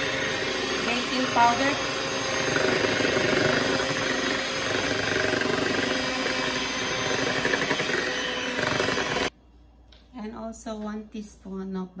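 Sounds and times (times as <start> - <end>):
electric hand mixer whisking batter: 0.0 - 9.3.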